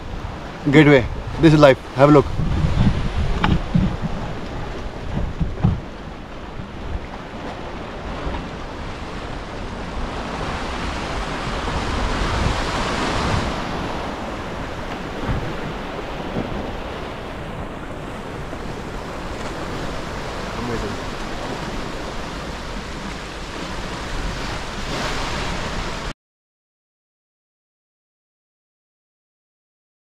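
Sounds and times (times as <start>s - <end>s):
wind buffeting microphone: 0.0s - 26.1s
sea waves washing in: 0.0s - 26.2s.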